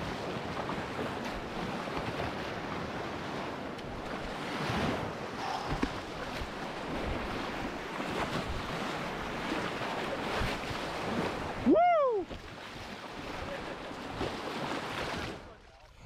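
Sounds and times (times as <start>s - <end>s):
river water rushing and splashing: 0.0s - 15.5s
person whooping: 11.6s - 12.3s.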